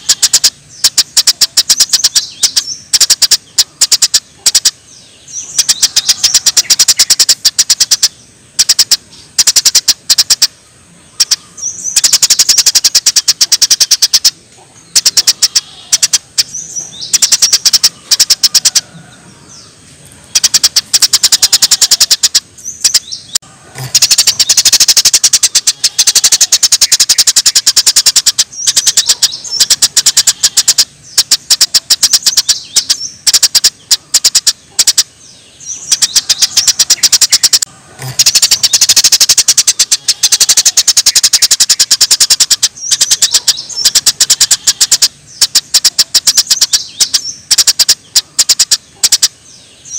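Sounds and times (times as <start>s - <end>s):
songbird rapid high-pitched calls: 0.0s - 49.9s.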